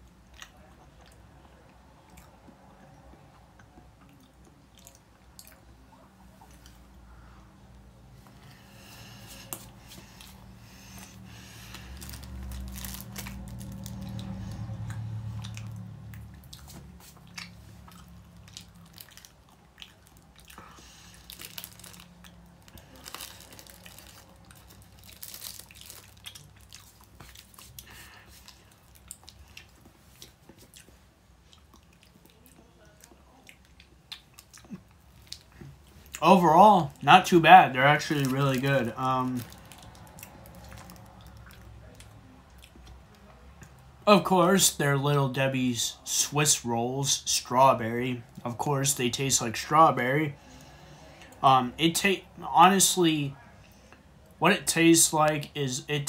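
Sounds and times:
wet chewing mouth smacks: 0:14.2 - 0:21.0.

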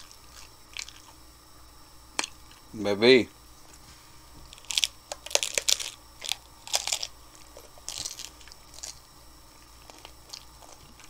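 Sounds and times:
crunching taco shells: 0:00.0 - 0:01.2, 0:04.4 - 0:11.0.

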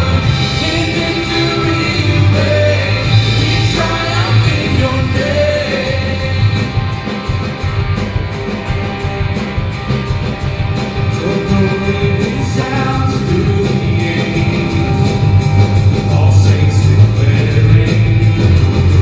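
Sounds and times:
electric guitar: 0:00.0 - 0:19.0
rock band playing: 0:00.0 - 0:19.0
steady drum beat: 0:00.0 - 0:19.0.

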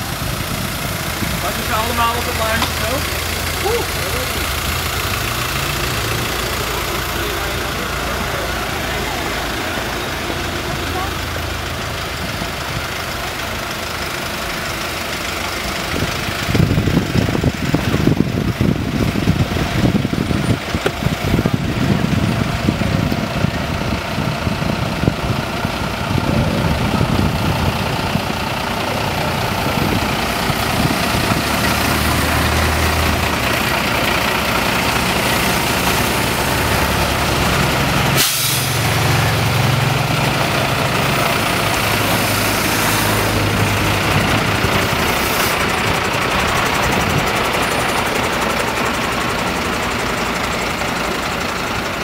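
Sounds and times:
diesel engines rumbling: 0:00.0 - 0:52.0.

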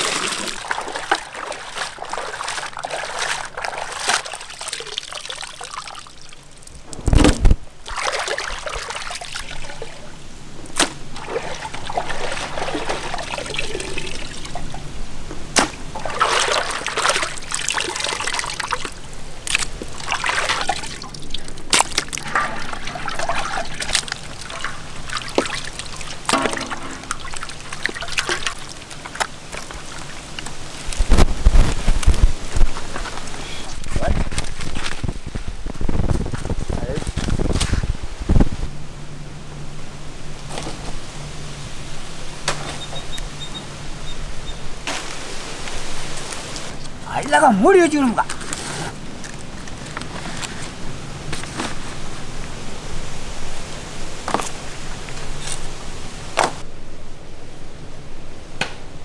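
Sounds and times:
water sloshing and splashing: 0:00.0 - 0:36.3
loud thump: 0:06.9 - 0:07.6.

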